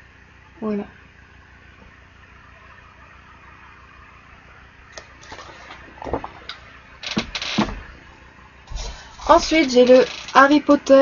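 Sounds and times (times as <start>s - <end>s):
faint room hum: 0.0s - 11.0s
books rustling and scraping: 5.2s - 6.5s.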